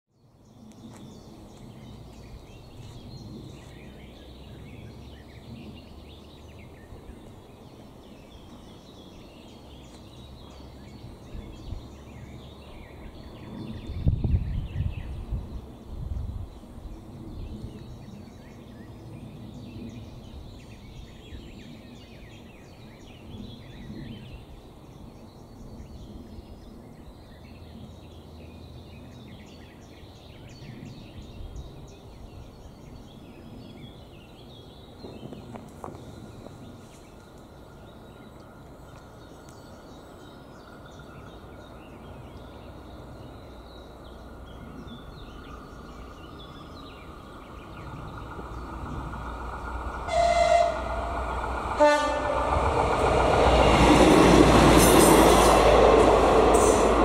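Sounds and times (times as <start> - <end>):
outdoor background noise: 0.1 - 57.0
birds singing and chirping: 0.2 - 57.0
low rumble: 44.2 - 57.0.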